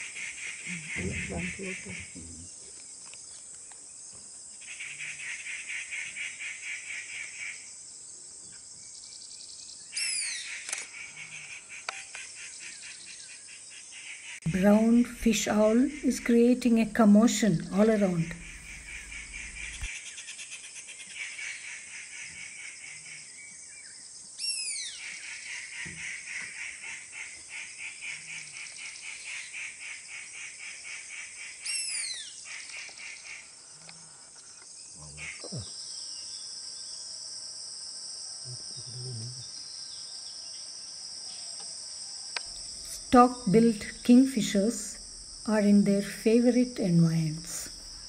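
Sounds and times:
fast pulsing insect chirr: 0:10.0 - 0:20.5, 0:26.6 - 0:48.0
insects shrilling: 0:14.0 - 0:19.9, 0:42.5 - 0:48.0.

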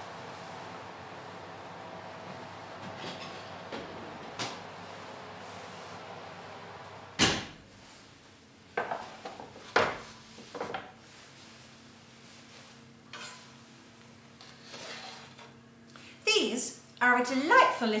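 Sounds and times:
steady oven hum: 0:00.0 - 0:18.0
oven door banging shut: 0:07.2 - 0:07.6
knife scraping tray: 0:14.6 - 0:15.4.

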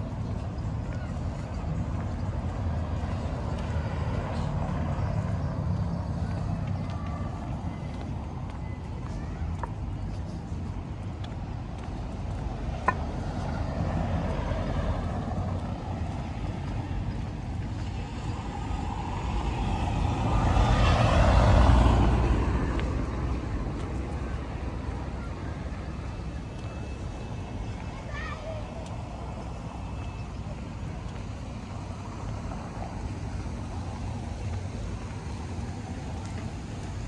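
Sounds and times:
low traffic rumble: 0:00.0 - 0:37.0
motor vehicle passing: 0:12.0 - 0:37.0.

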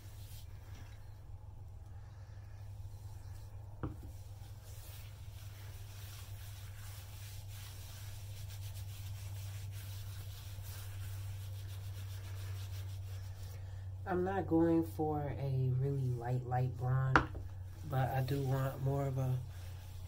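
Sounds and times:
low steady hum: 0:00.0 - 0:20.0
hands rubbing soapy hair: 0:02.9 - 0:13.6, 0:16.0 - 0:20.0.

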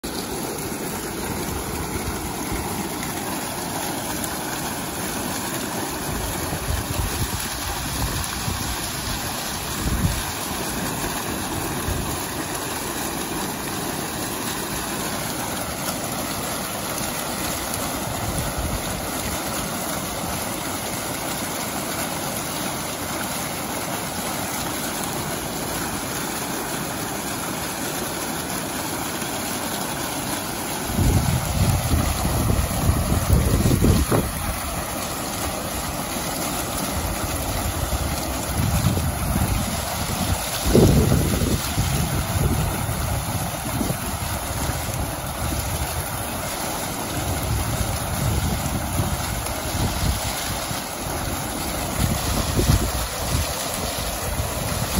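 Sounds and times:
fountain water splashing: 0:00.0 - 0:54.9
wind on microphone: 0:06.1 - 0:10.4, 0:30.9 - 0:34.7, 0:37.0 - 0:46.1, 0:47.2 - 0:50.8, 0:51.8 - 0:54.9.

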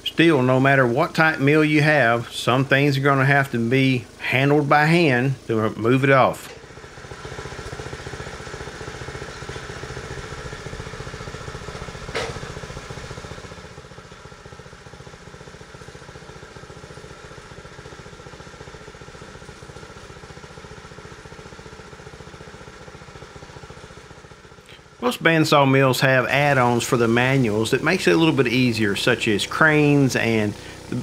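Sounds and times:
sawmill engine running: 0:00.0 - 0:31.0.

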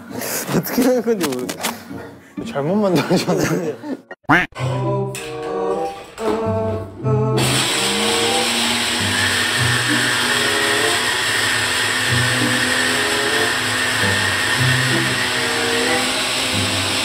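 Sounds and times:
background music with bass line: 0:04.3 - 0:10.8
electric motor whirring: 0:07.4 - 0:17.0.

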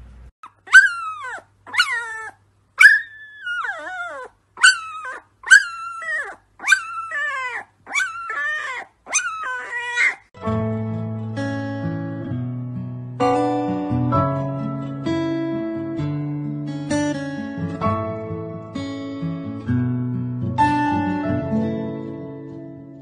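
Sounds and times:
puppy howling: 0:00.5 - 0:10.3
acoustic guitar music: 0:10.4 - 0:23.0.

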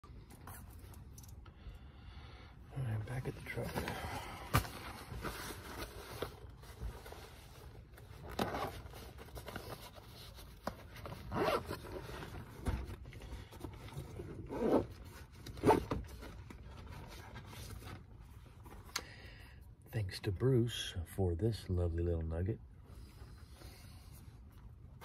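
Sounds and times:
zipper being pulled open: 0:11.2 - 0:12.3, 0:14.4 - 0:15.0.

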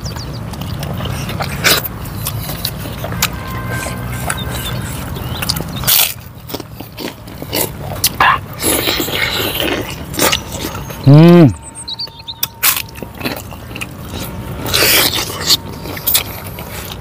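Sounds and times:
crunchy bites into crackers: 0:00.0 - 0:10.8
low steady hum: 0:09.0 - 0:17.0.

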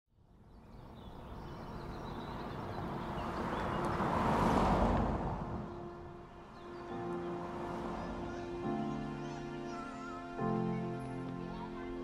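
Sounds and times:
car driving past: 0:01.2 - 0:08.8.

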